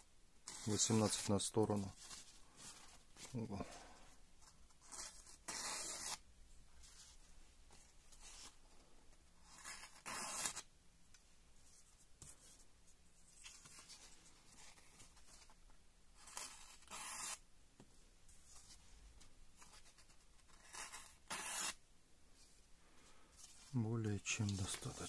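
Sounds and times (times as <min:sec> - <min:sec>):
knife slicing paper: 0:20.6 - 0:21.8.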